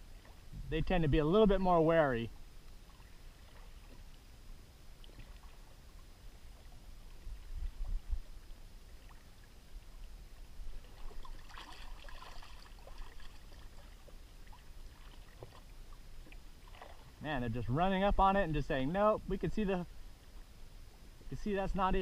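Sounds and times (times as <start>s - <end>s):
wind rumble on microphone: 0.0s - 11.8s
small waves lapping against hull: 0.0s - 22.0s.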